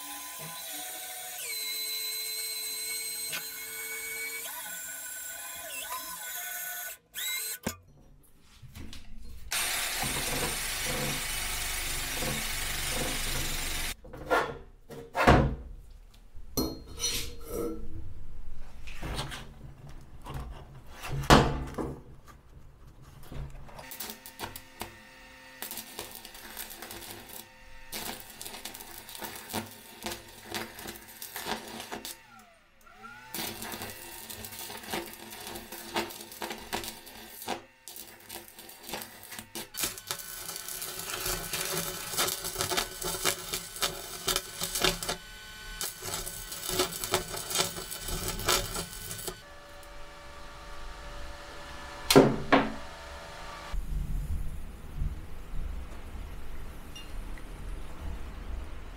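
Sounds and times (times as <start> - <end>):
welding arc crackling: 9.5 - 14.0, 23.8 - 32.3, 33.2 - 50.0.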